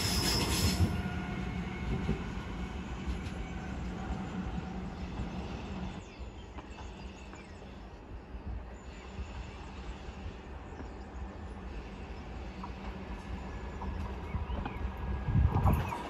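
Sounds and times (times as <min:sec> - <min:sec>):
electric train approaching: 0:00.0 - 0:16.0
wind on microphone: 0:14.0 - 0:16.0.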